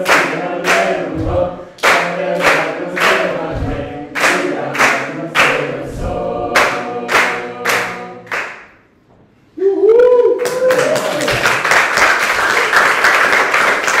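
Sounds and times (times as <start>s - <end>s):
group singing: 0.0s - 8.8s
sharp beat: 0.3s - 8.0s
applause: 10.4s - 14.0s.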